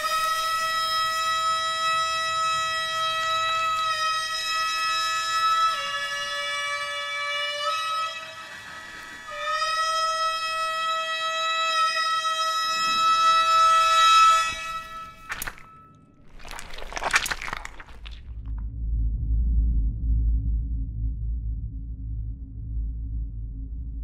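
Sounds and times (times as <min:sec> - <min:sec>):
horn sounding long notes: 0:00.0 - 0:15.9.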